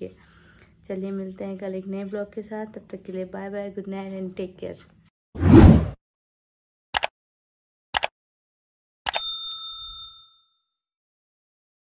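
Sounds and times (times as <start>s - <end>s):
quick clicks: 8.0s - 8.2s
bright bell ding: 9.1s - 10.7s.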